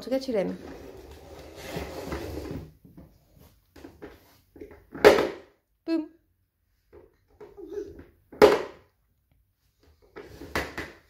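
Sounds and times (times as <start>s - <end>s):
toy car rolling on laminate floor: 0.4s - 2.8s.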